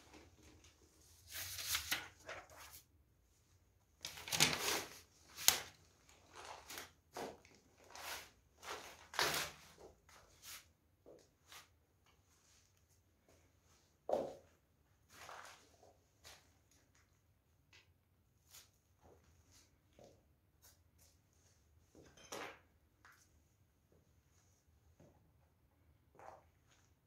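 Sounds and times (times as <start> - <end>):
paper rustling and crunching: 0.4 - 2.8, 4.1 - 9.7.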